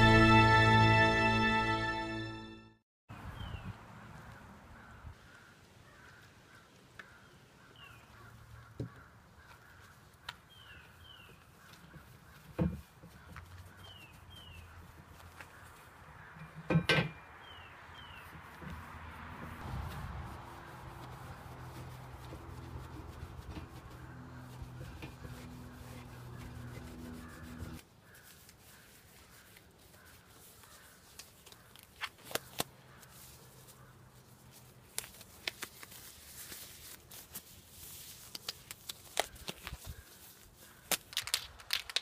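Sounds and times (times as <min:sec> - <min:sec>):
rag rubbing on metal rail: 0:20.7 - 0:27.8
rubber gloves crinkling and snapping: 0:28.0 - 0:42.0.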